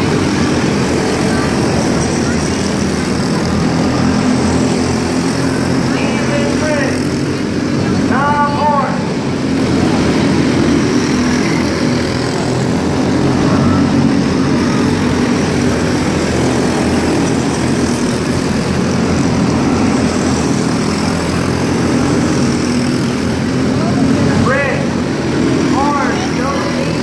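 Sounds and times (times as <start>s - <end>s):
race car engines running: 0.0s - 27.0s.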